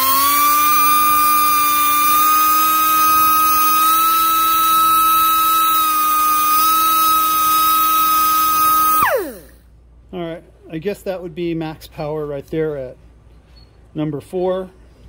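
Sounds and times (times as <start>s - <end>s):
air die grinder whining: 0.0s - 9.6s.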